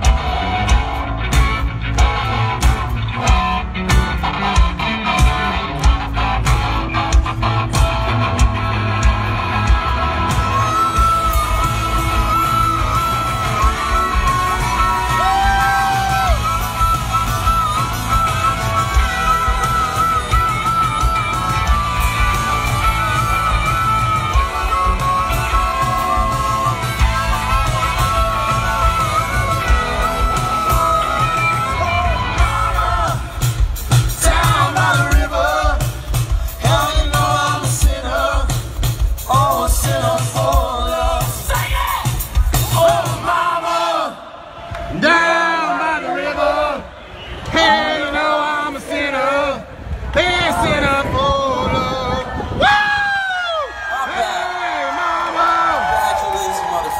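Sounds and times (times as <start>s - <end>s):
steady drum beat: 0.0s - 43.6s
strummed electric guitars: 0.0s - 43.7s
live rock band: 0.0s - 44.2s.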